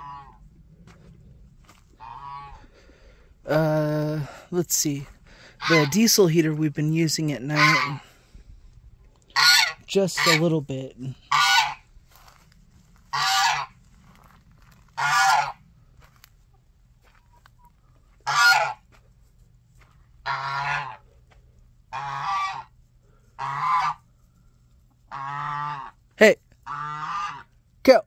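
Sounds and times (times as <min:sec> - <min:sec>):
goose honking: 0:00.0 - 0:00.4, 0:01.9 - 0:02.8, 0:05.4 - 0:08.2, 0:09.3 - 0:11.9, 0:13.0 - 0:13.8, 0:14.9 - 0:15.7, 0:18.2 - 0:18.9, 0:20.2 - 0:21.2, 0:21.9 - 0:24.1, 0:24.9 - 0:27.6.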